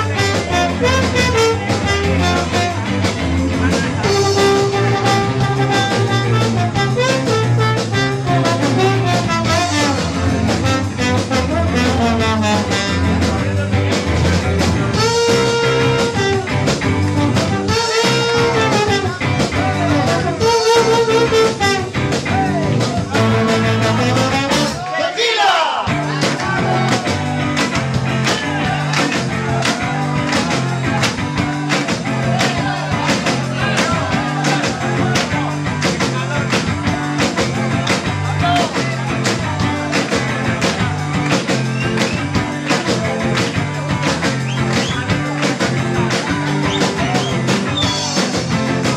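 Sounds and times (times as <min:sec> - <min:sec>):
slide trombone: 0:00.0 - 0:02.9, 0:04.0 - 0:13.4, 0:14.9 - 0:22.0, 0:23.2 - 0:24.8
live band playing: 0:00.0 - 0:48.9.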